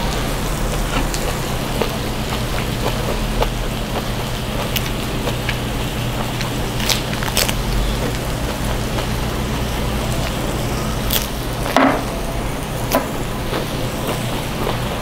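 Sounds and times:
pork sizzling on a grill: 0.0s - 15.0s
eating clicks and smacks: 6.2s - 9.1s.

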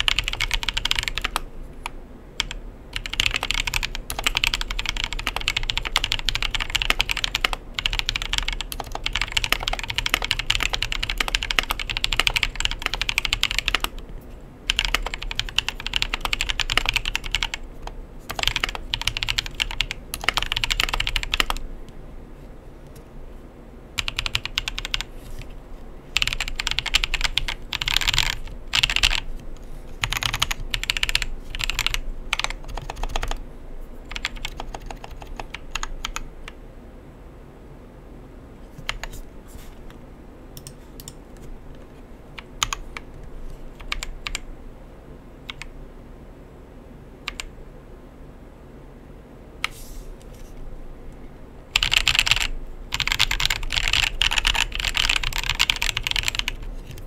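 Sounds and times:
keyboard typing: 0.0s - 14.1s, 14.7s - 21.6s, 24.0s - 25.5s, 26.2s - 33.4s, 34.1s - 36.6s, 38.8s - 39.2s, 40.6s - 44.4s, 45.5s - 45.7s, 47.3s - 47.5s, 51.7s - 57.0s.

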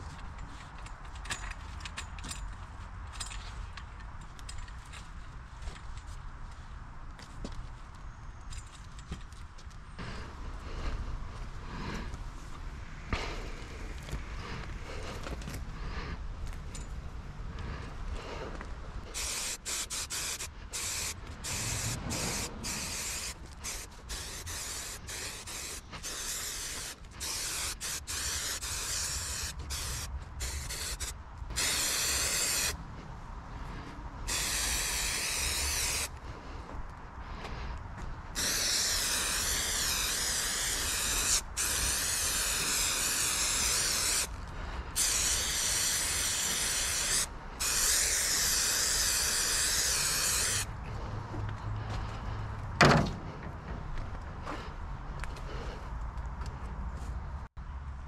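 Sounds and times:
spray adhesive hissing: 19.1s - 32.8s, 34.3s - 36.1s, 38.4s - 44.3s, 45.0s - 50.7s.

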